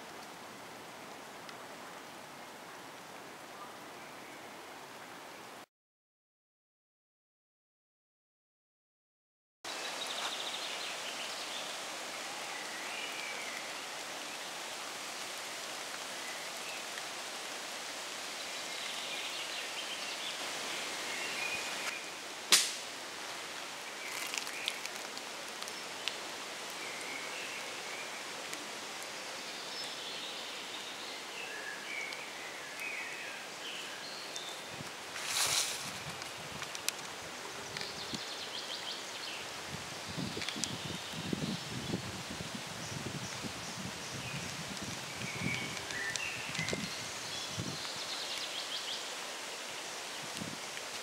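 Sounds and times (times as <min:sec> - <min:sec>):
steady outdoor hiss: 0:00.0 - 0:05.6, 0:09.7 - 0:51.0
sharp click: 0:22.5 - 0:22.8.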